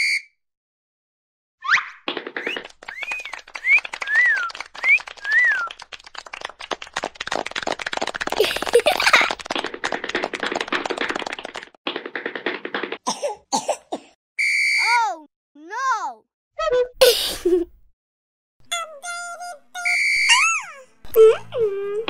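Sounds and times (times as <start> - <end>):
whistle-like chirps: 0.0 - 0.4, 2.9 - 5.8, 14.4 - 15.2, 19.8 - 20.8
rapid clatter of clicks: 2.1 - 13.0.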